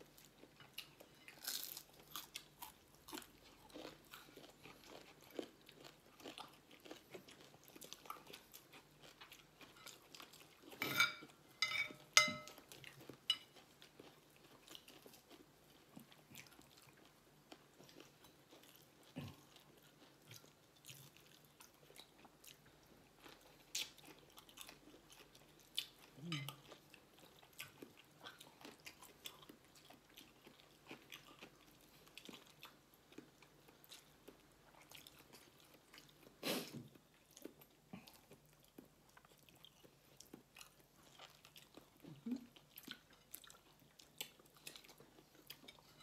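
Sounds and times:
people chewing and crunching: 0:00.0 - 0:46.0
dishware clinking: 0:10.8 - 0:12.6.

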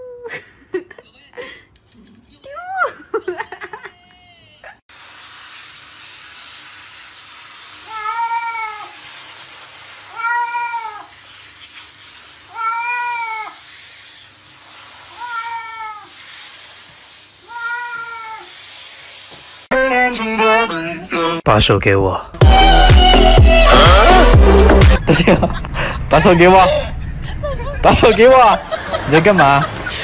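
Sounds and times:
shower head hissing: 0:04.9 - 0:19.7
cat meowing: 0:07.9 - 0:09.0, 0:10.1 - 0:11.1, 0:12.5 - 0:13.6, 0:15.1 - 0:16.1, 0:17.4 - 0:18.5.

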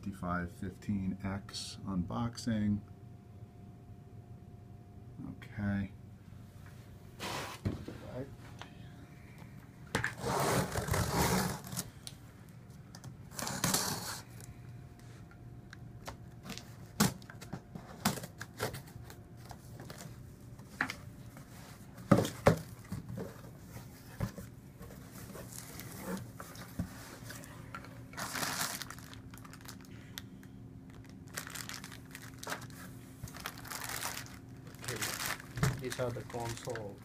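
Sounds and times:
tape tearing: 0:10.0 - 0:11.9, 0:13.3 - 0:14.3, 0:31.3 - 0:36.8
plastic bag crinkling: 0:28.1 - 0:30.2, 0:30.9 - 0:37.0.

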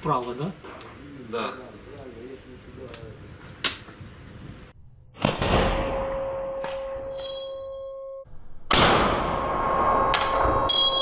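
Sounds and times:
steady ringing tone: 0:05.8 - 0:08.3, 0:09.4 - 0:11.0
suppressed gunshot: 0:08.7 - 0:10.4.

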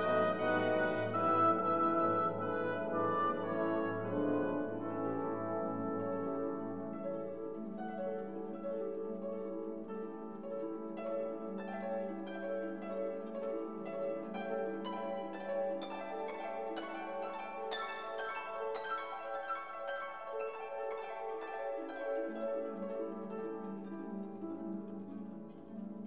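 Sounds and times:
plucked harp-like notes: 0:00.0 - 0:26.0.

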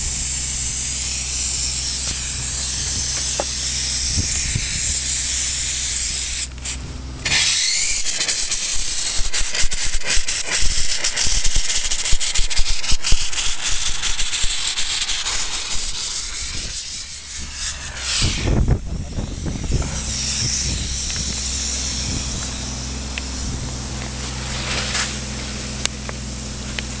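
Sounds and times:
crackling spray spatter: 0:00.0 - 0:27.0
engine hum: 0:00.0 - 0:27.0
spray gun hissing: 0:00.0 - 0:27.0
low rush: 0:01.9 - 0:27.0.

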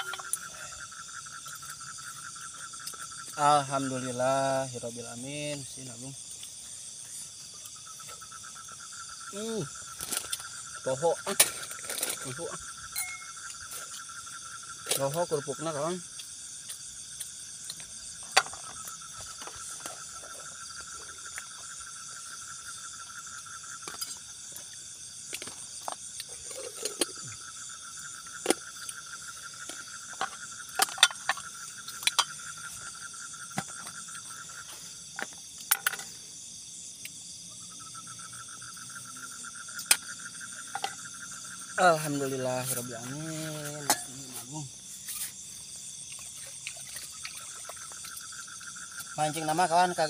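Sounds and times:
plates and pots clinking: 0:00.0 - 0:00.4
night insects trilling: 0:00.0 - 0:50.0.

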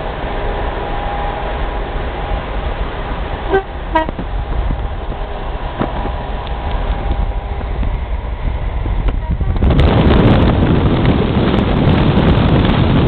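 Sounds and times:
car road noise: 0:00.0 - 0:13.0
car horn toots: 0:03.5 - 0:04.2.

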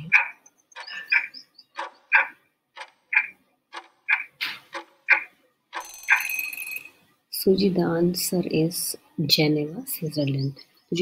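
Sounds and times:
clock ticking: 0:00.0 - 0:07.0.

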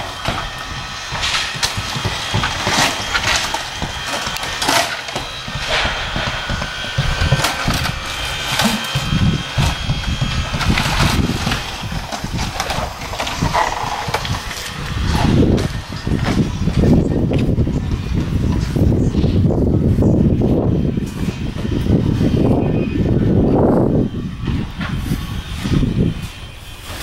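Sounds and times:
siding knocks and cracks: 0:00.0 - 0:18.6.

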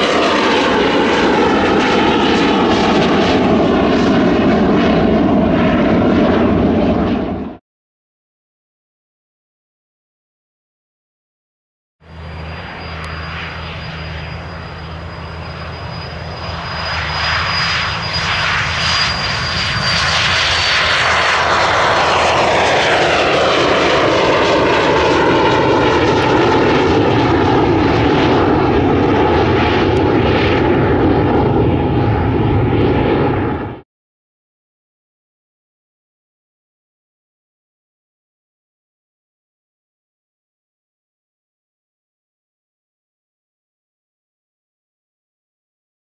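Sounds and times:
jet engines at takeoff: 0:00.0 - 0:07.6, 0:12.0 - 0:33.9.

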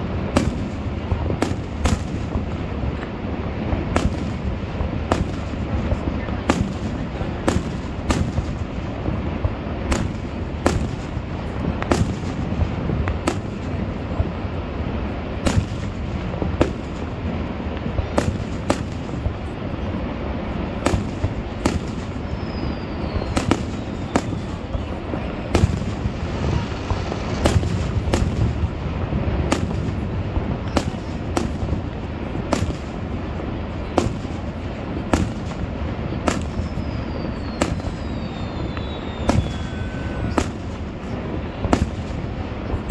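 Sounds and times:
fireworks bangs: 0:00.0 - 0:42.9
falling whistles: 0:22.0 - 0:24.9, 0:36.4 - 0:40.7.

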